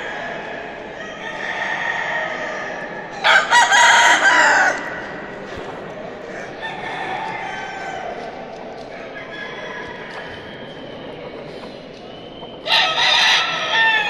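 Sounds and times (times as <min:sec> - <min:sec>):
rooster crowing: 0:03.2 - 0:04.8, 0:12.7 - 0:14.0.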